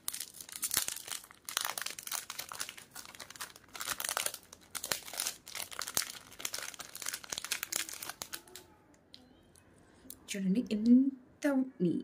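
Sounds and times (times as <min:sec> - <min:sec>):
plastic pouches crinkling: 0:00.0 - 0:08.7.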